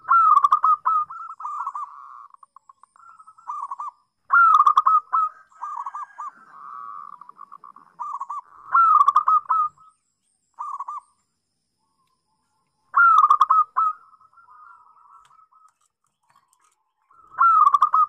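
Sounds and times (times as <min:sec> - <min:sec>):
dove cooing: 0:00.0 - 0:02.4, 0:03.0 - 0:09.9, 0:10.6 - 0:11.1, 0:12.9 - 0:15.7, 0:17.1 - 0:18.0.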